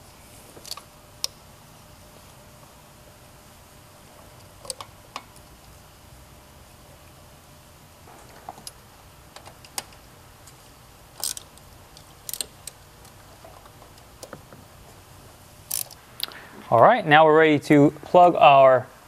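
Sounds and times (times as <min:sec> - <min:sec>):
hand ratchet clicking: 0:11.2 - 0:12.8, 0:15.7 - 0:16.0.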